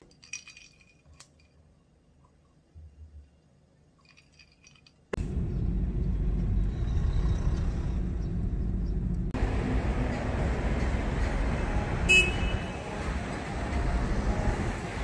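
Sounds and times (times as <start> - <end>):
vehicle traffic rumble: 5.1 - 15.0.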